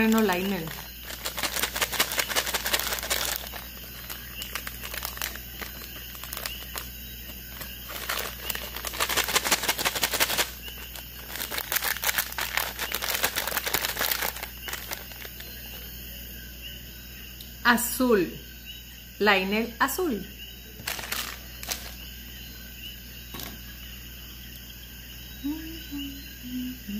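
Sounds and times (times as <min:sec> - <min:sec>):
plastic candy bag crinkling: 0:00.0 - 0:15.8, 0:20.8 - 0:22.0.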